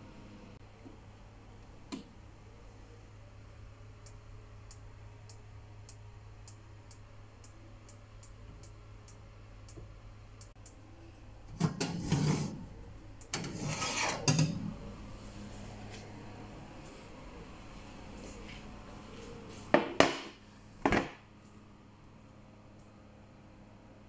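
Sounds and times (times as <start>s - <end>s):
oven humming: 0.0s - 24.0s
timer ticking: 4.0s - 9.8s
baking tray scraping on rack: 11.5s - 12.7s, 13.3s - 14.7s.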